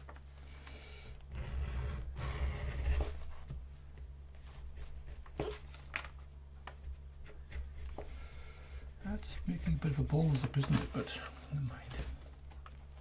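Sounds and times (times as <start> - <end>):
tool scraping leather edge: 1.3 - 3.3.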